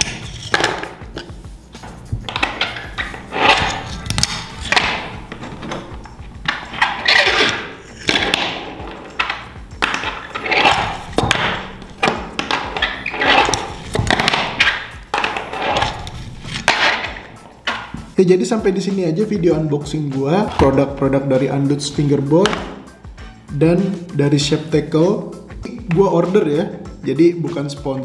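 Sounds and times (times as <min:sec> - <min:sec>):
fingerboard trucks scraping: 0:01.3 - 0:18.0.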